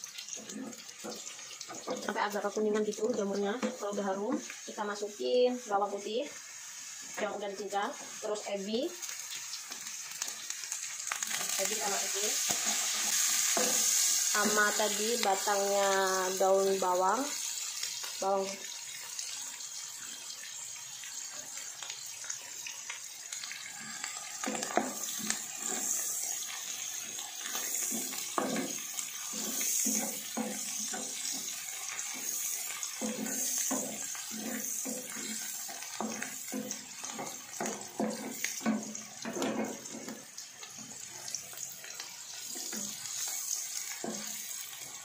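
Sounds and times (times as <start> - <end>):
food sizzling in a pan: 0.0 - 45.0
wooden spatula scraping a pan: 24.1 - 40.3.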